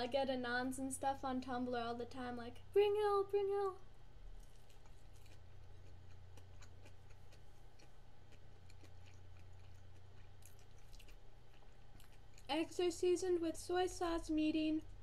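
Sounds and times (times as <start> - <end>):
steady low hum: 0.0 - 15.0
person chewing: 4.3 - 12.5.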